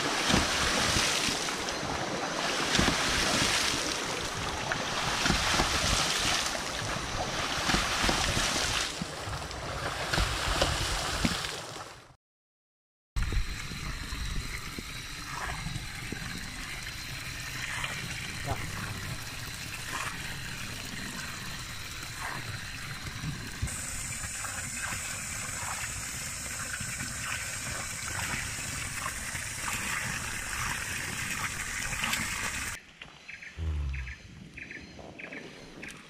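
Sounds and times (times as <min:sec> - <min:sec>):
water running and trickling: 0:13.2 - 0:32.8.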